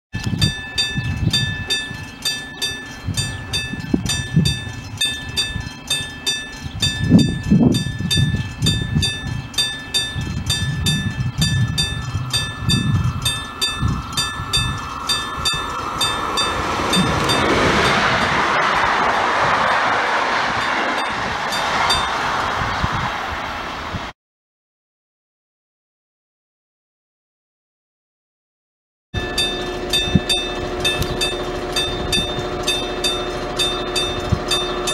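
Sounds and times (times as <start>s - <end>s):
repeating ringing tone: 0.2s - 18.1s, 29.2s - 34.9s
train rolling past: 0.2s - 24.1s, 29.2s - 34.9s.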